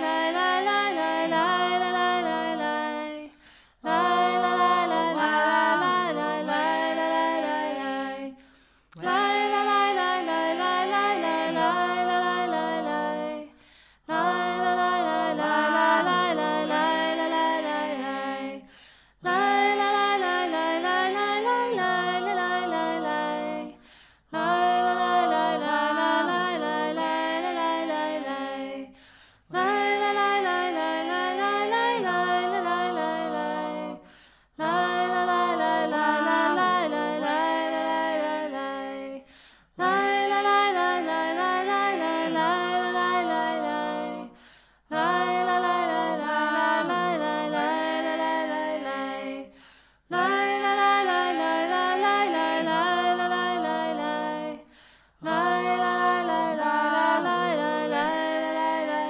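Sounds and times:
unaccompanied singing: 0.0s - 59.0s.

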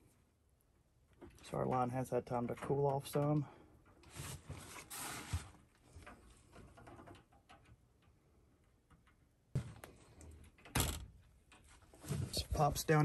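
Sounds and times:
faint clicks of metal parts: 5.8s - 12.0s.

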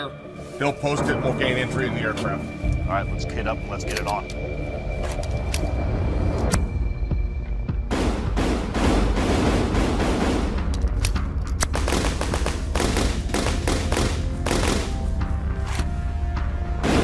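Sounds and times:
rapid gunfire: 7.9s - 10.7s, 11.7s - 15.1s.

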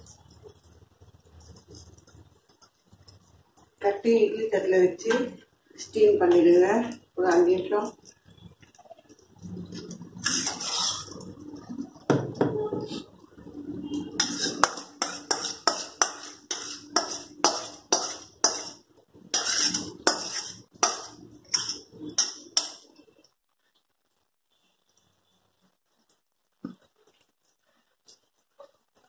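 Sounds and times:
spoon scraping and knocking on pan: 10.2s - 11.1s, 14.1s - 23.0s.

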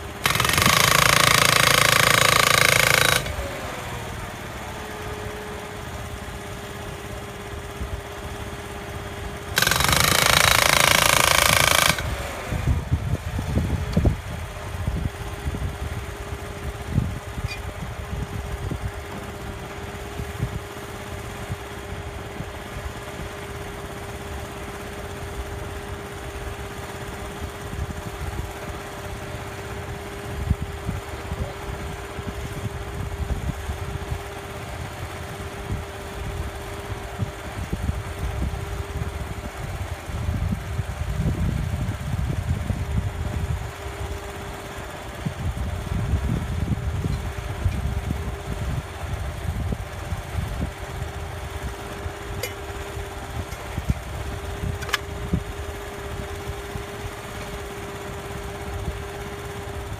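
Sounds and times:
hydraulic post driver hammering: 0.0s - 4.1s, 8.8s - 12.9s, 52.3s - 55.2s, 57.0s - 57.9s
hydraulic power pack running: 0.0s - 59.9s.

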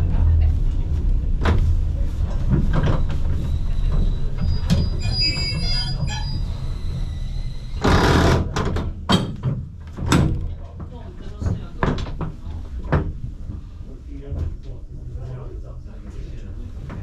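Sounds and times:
tram rumbling on rails: 0.0s - 9.1s
tram wheels squealing: 2.8s - 7.8s.

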